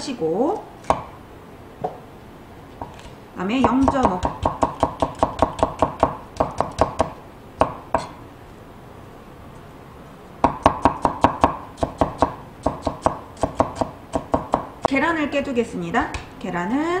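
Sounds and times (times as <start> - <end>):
cleaver chopping on wooden board: 0.8 - 1.1, 3.7 - 8.2, 10.4 - 14.7.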